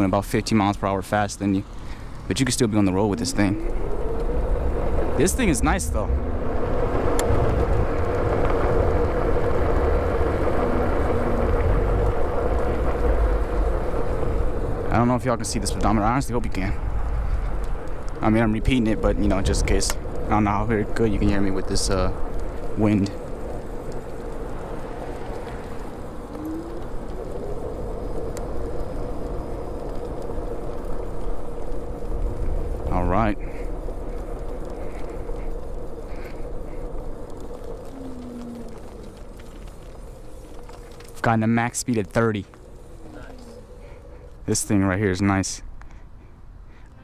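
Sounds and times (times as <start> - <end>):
wind rushing over microphone: 0.0 - 46.7
heavy low rumble: 0.0 - 46.8
scooter tires and motor hum: 0.0 - 47.0
electric motor whine: 2.6 - 14.9.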